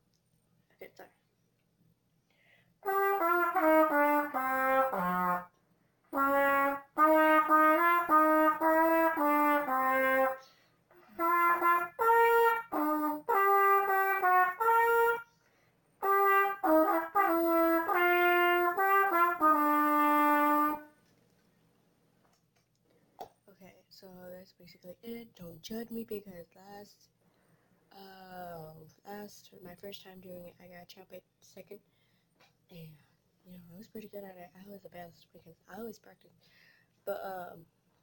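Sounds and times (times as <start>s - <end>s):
player breathing: 2.3s - 2.7s
solo trumpet playing: 2.8s - 15.4s, 16.0s - 21.0s.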